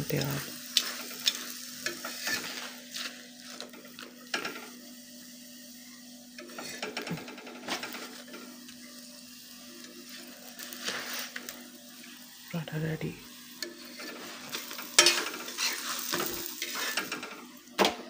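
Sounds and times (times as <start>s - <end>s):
flatbread sizzling in pan: 0.0s - 18.0s
metal tongs clicking on pan: 15.0s - 17.3s.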